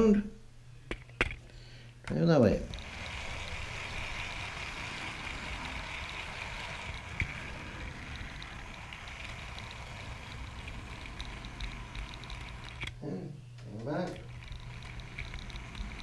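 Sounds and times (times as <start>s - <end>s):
electric motor whine: 2.5s - 13.0s, 13.8s - 16.0s
wheels clicking on track: 2.6s - 13.0s, 14.1s - 16.0s.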